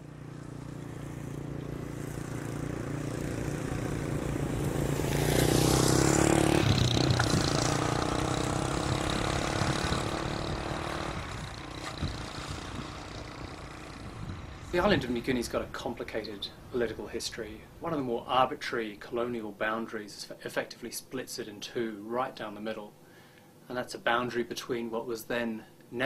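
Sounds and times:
vehicle engine passing: 0:00.0 - 0:15.7.

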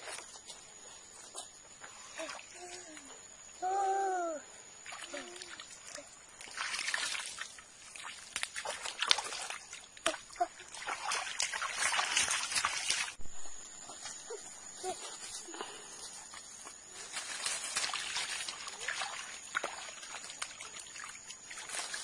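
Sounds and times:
splashing in shallow muddy water: 0:04.8 - 0:13.2, 0:17.0 - 0:22.0.

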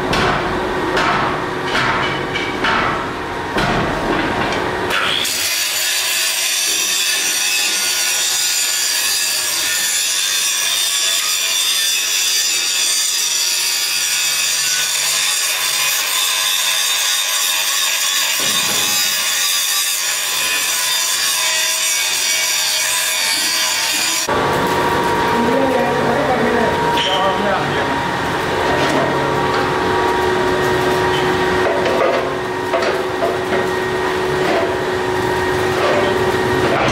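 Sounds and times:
power tool grinding: 0:04.9 - 0:29.3.

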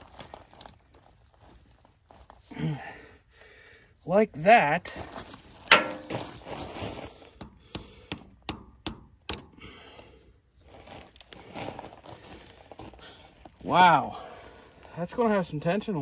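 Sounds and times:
hammer knocking on steel: 0:05.7 - 0:06.2.

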